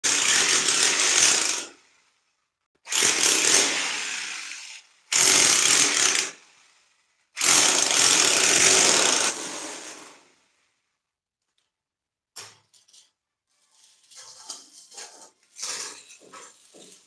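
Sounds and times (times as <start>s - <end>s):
power tool drilling into brick: 0.0s - 1.8s, 2.9s - 6.6s, 7.4s - 10.4s.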